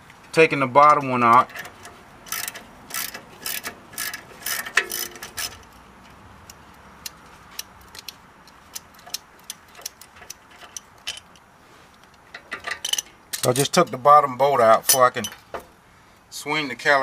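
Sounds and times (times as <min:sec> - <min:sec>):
ratchet wrench clicking: 0:01.4 - 0:11.5, 0:12.3 - 0:14.0.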